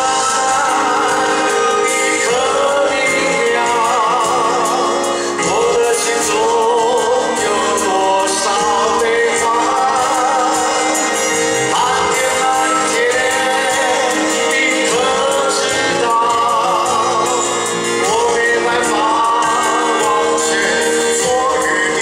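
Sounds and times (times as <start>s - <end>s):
band accompaniment: 0.0s - 22.0s
man singing a ballad: 0.0s - 22.0s.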